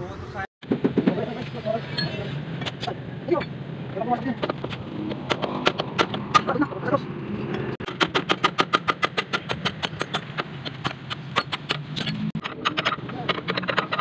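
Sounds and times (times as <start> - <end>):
hand tools clinking on metal: 1.9 - 3.5, 8.8 - 14.0.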